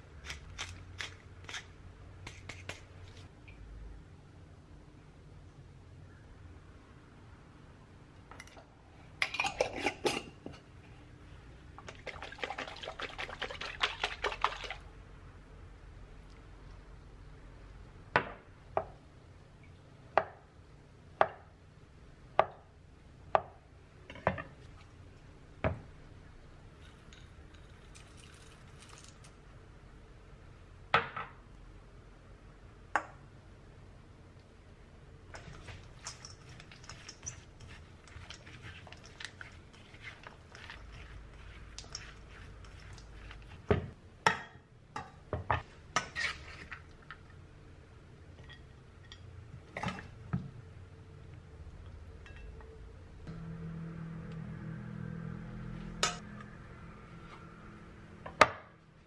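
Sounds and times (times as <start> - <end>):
faint low hum and hiss: 0.0 - 59.0
dishes and cutlery clinking: 35.4 - 38.4.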